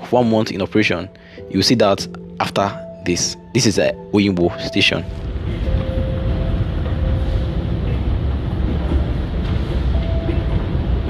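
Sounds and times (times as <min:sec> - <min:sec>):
escalator rumbling: 0:03.8 - 0:11.0
faint humming tones: 0:04.5 - 0:11.0.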